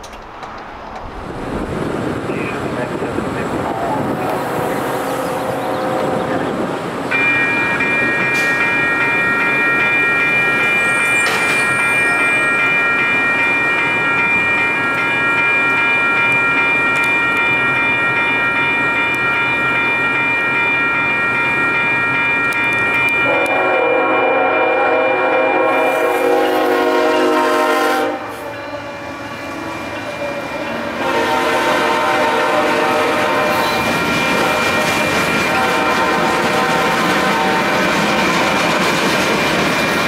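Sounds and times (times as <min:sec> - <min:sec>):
train rumble and rail noise: 0:00.0 - 0:40.0
train air horn chord: 0:04.2 - 0:06.4, 0:23.2 - 0:29.0, 0:31.0 - 0:33.8, 0:35.4 - 0:37.8.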